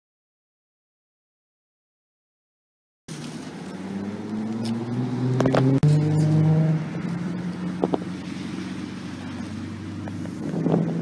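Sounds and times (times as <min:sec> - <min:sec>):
car engine accelerating: 0:03.1 - 0:11.0.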